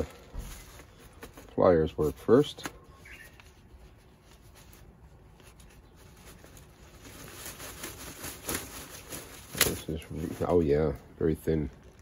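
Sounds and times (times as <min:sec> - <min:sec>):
plastic canopy rustling: 0:00.0 - 0:12.0.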